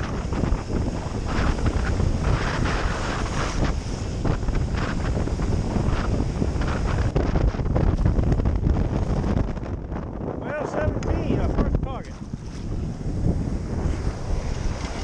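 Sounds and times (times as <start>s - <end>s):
ocean surf washing: 0.0s - 15.0s
wind buffeting microphone: 0.0s - 15.0s.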